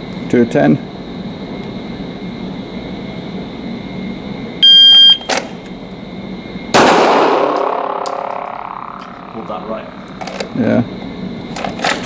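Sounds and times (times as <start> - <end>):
shot timer beep: 4.6 - 5.3.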